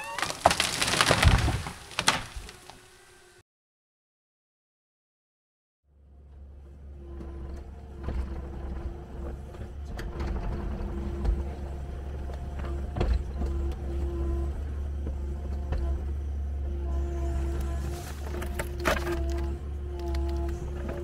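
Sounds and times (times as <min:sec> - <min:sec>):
excavator diesel engine running: 0:05.9 - 0:21.0.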